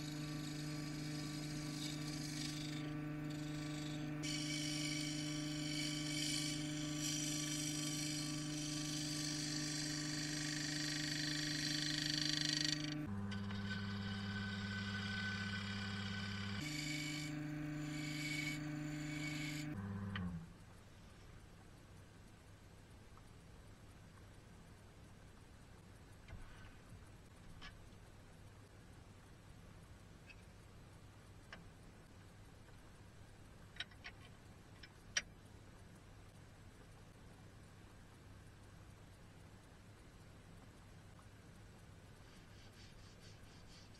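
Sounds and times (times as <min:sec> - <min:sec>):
turning tool scraping wood: 0:00.0 - 0:19.8, 0:42.2 - 0:43.9
wood lathe motor hum: 0:00.0 - 0:20.4
faint low hum: 0:00.0 - 0:43.9.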